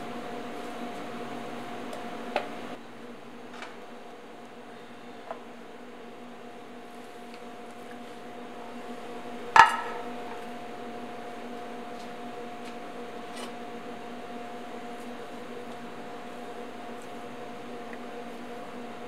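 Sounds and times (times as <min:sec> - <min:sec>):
steady background hum: 0:00.0 - 0:19.0.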